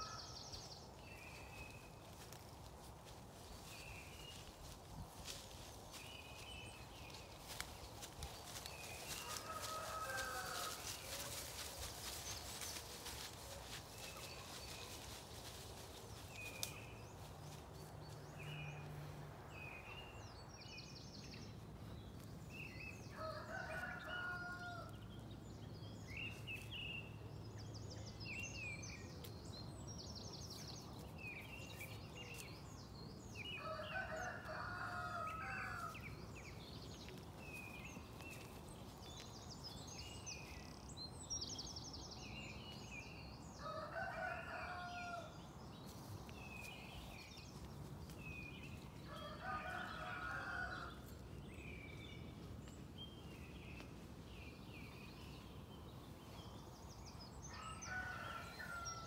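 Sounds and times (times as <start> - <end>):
songbirds chirping and trilling: 0.0 - 59.0
rooster crowing: 9.2 - 10.9, 23.2 - 24.9, 33.6 - 35.9.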